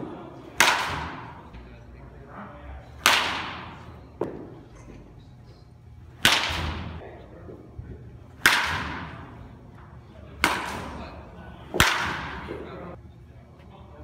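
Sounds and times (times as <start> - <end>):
baseball bat cracking ball: 0.5 - 1.5, 3.0 - 4.6, 6.1 - 7.0, 8.4 - 9.3, 10.4 - 11.0, 11.7 - 12.7.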